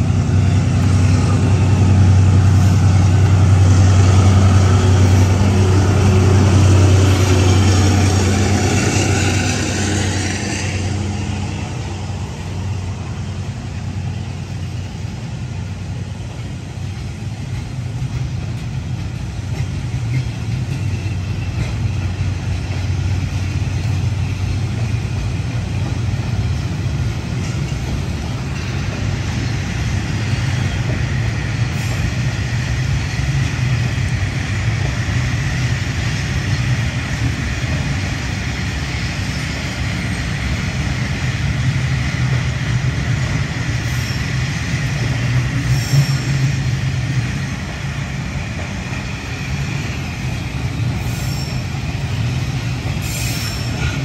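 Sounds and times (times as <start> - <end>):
locomotive engine drone: 0.0 - 54.0.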